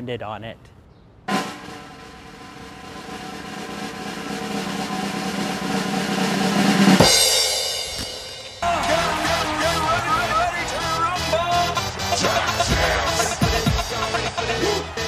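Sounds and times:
snare drum roll: 0:01.3 - 0:08.5
cymbal crash: 0:01.3 - 0:08.6.

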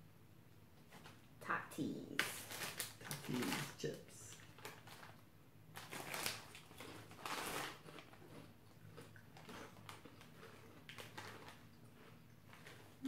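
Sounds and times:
chip bag crinkling: 0:02.2 - 0:13.0
potato chips crunching: 0:02.2 - 0:13.0.

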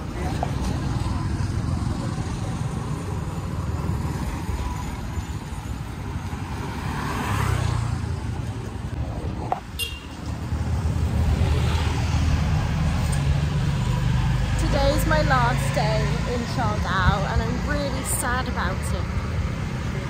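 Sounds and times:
street traffic rumble: 0:00.0 - 0:20.0.

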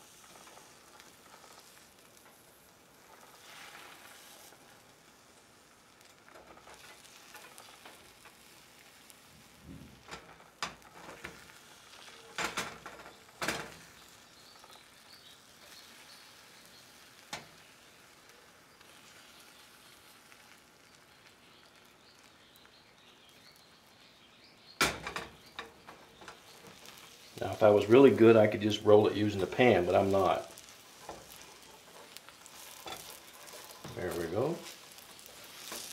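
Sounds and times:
eggs sizzling in a pan: 0:00.0 - 0:35.9
metal spatula scraping pan: 0:29.3 - 0:35.9.

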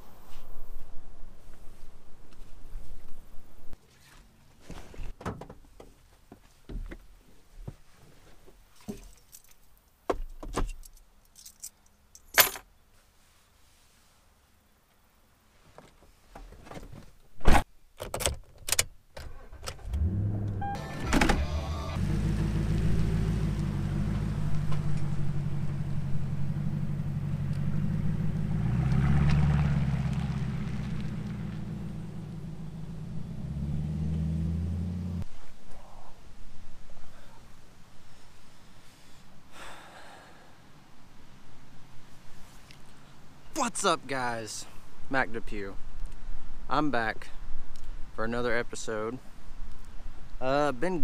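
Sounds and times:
rustling: 0:00.0 - 0:09.9
keys jangling: 0:10.7 - 0:12.6
pickup truck engine accelerating: 0:19.9 - 0:35.2.

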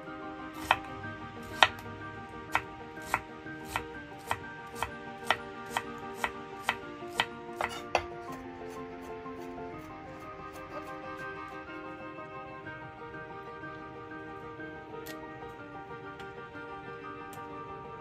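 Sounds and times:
soft background music: 0:00.0 - 0:18.0
knife chopping on wooden board: 0:00.6 - 0:00.9, 0:01.5 - 0:01.8, 0:02.5 - 0:08.4.

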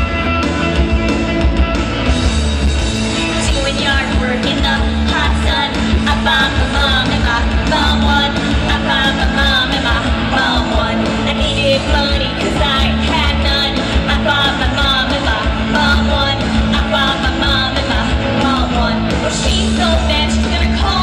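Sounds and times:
electric bass guitar: 0:00.0 - 0:21.0
rock band playing: 0:00.0 - 0:21.0
woman singing into microphone: 0:03.4 - 0:21.0.

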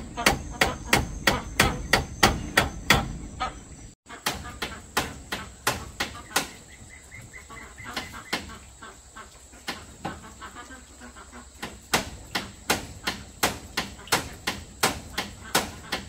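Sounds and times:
tool striking wood: 0:00.2 - 0:03.2, 0:04.2 - 0:06.6, 0:11.9 - 0:16.0.

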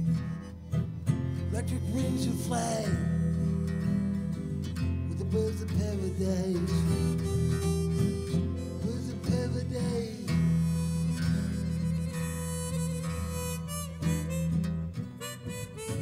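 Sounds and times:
strummed acoustic guitars: 0:00.0 - 0:16.0
man singing: 0:01.5 - 0:04.3, 0:05.0 - 0:07.8, 0:08.6 - 0:12.2
harmonica solo: 0:06.0 - 0:16.0.

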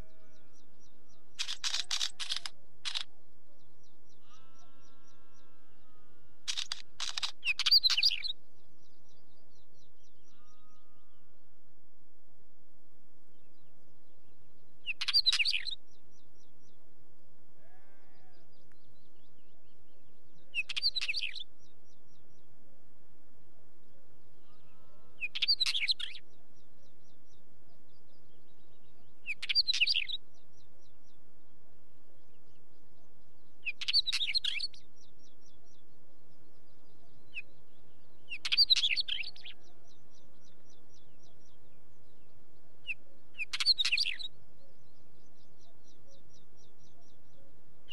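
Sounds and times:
bird singing short phrases: 0:03.6 - 0:11.3, 0:14.8 - 0:16.5, 0:17.6 - 0:22.2, 0:24.4 - 0:26.3, 0:28.2 - 0:30.2, 0:33.0 - 0:47.9.

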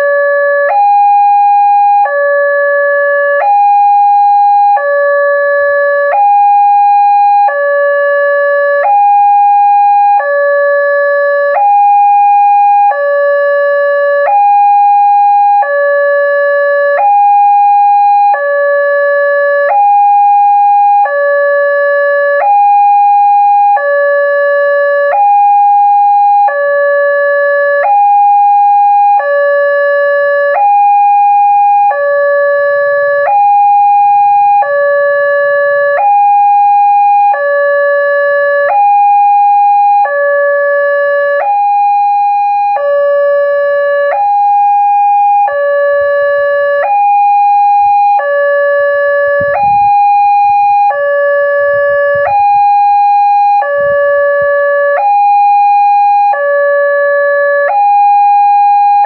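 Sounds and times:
level-crossing alarm two-tone: 0:14.3 - 0:59.0.

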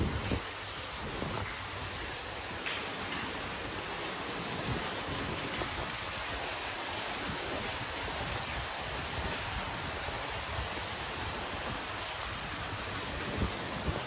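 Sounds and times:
wind blowing across microphone: 0:00.0 - 0:03.6, 0:04.2 - 0:14.0.

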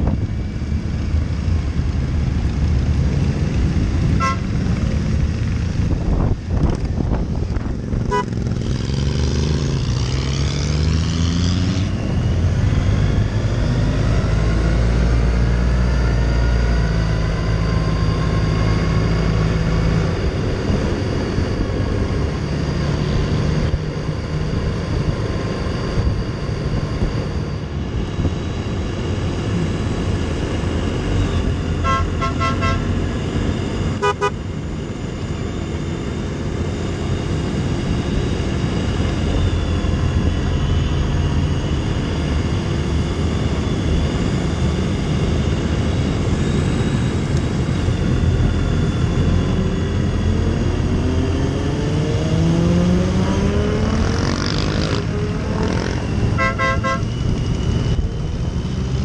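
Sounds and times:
motorcycle engine accelerating: 0:00.0 - 0:59.0
short horn beeps: 0:04.2 - 0:04.5, 0:08.1 - 0:08.4, 0:31.8 - 0:32.9, 0:34.0 - 0:34.4, 0:56.4 - 0:57.1.

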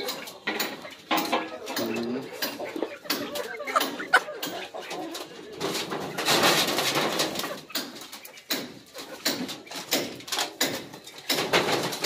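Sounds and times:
birds calling: 0:00.0 - 0:11.3
sharp knocks: 0:06.2 - 0:12.0.

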